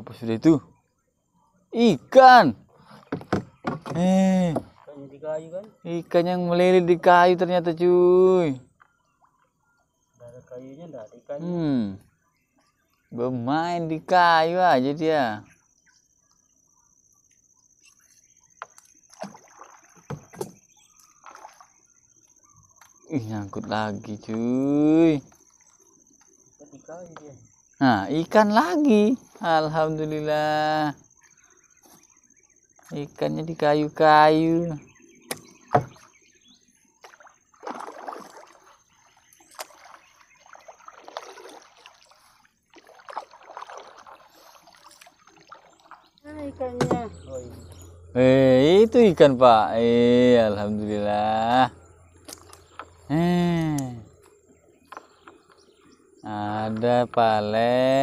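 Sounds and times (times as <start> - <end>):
knocks against boat hull: 3.0 - 4.8, 35.3 - 36.0, 46.8 - 47.2
water splashing and dripping: 18.6 - 23.0, 37.0 - 47.5, 50.4 - 54.1.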